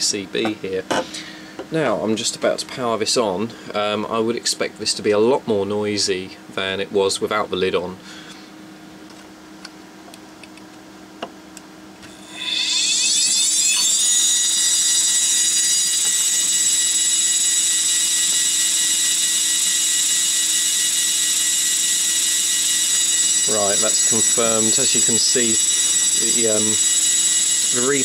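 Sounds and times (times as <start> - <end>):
hard drive spinning whine: 11.9 - 28.0.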